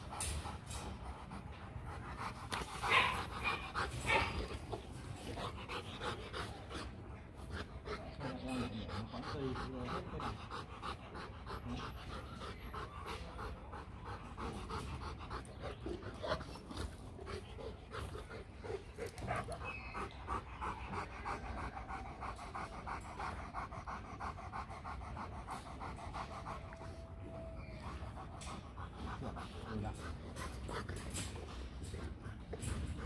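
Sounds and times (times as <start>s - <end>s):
dogs panting: 0.0s - 33.0s.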